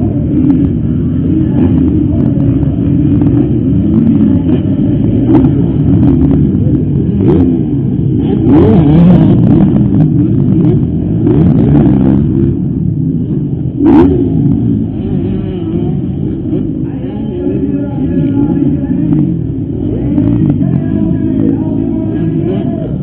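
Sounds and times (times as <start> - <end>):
motocross engines revving: 0.0 - 23.0.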